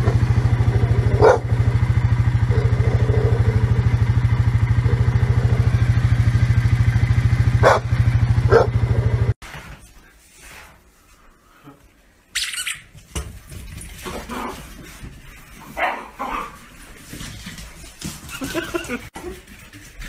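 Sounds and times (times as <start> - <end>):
atv engine idling: 0.0 - 9.4
dog barking: 1.1 - 1.6, 7.6 - 8.9, 15.8 - 16.5.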